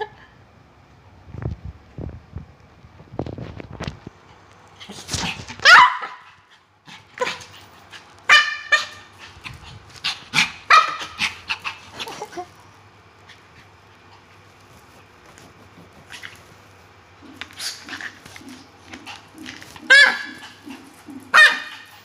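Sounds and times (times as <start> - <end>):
small dog yapping: 4.8 - 6.5, 8.3 - 12.5, 17.2 - 22.0.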